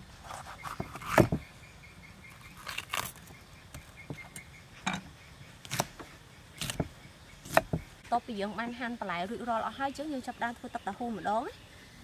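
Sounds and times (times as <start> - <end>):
knife cutting on wooden board: 0.2 - 1.4.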